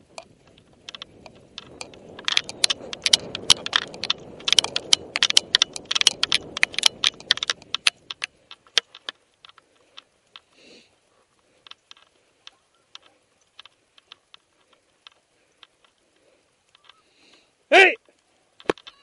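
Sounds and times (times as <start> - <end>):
camera rig rattling and clicking: 0.0 - 10.6, 11.4 - 17.0, 18.6 - 19.0
rustling: 0.0 - 19.0.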